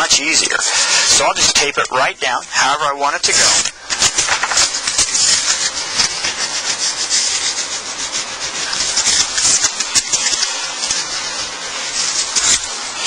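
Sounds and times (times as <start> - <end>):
tape rubbing with crackling friction: 0.0 - 13.0
masking tape tearing: 3.3 - 13.0.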